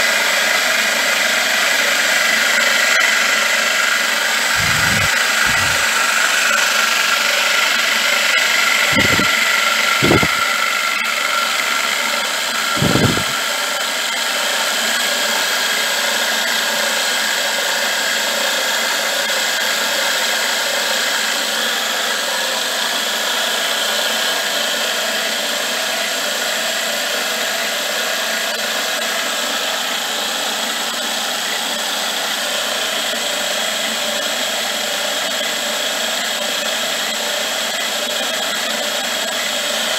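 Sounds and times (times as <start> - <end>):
milling machine cutting metal: 3.7 - 14.0
short low thumps: 4.6 - 6.0, 8.9 - 9.3, 10.0 - 10.4, 12.8 - 13.4.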